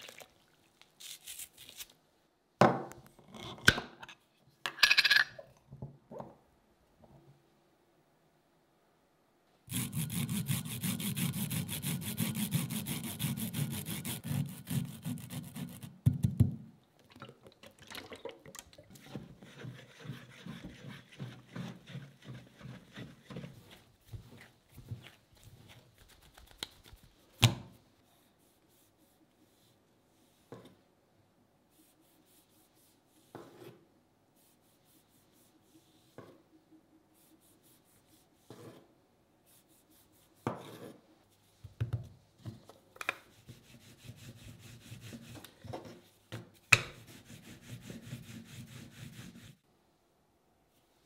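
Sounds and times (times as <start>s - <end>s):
rolling pin rolling dough: 18.9s - 25.8s.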